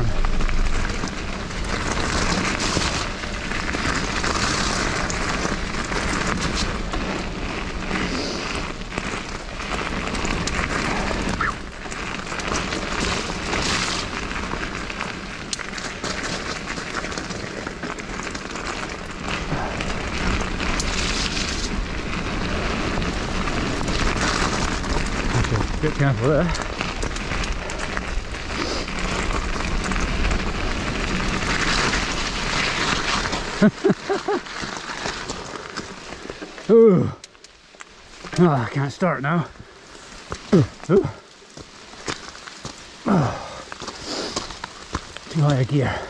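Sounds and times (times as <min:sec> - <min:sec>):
tyres rushing on wet ground: 0:00.0 - 0:37.2, 0:38.1 - 0:46.0
bike clicking and rattling: 0:00.0 - 0:46.0.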